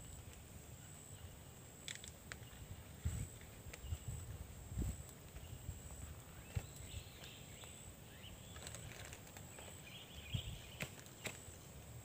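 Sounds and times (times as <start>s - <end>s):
high insect whine: 0.0s - 12.0s
wind rumbling on microphone: 2.3s - 11.0s.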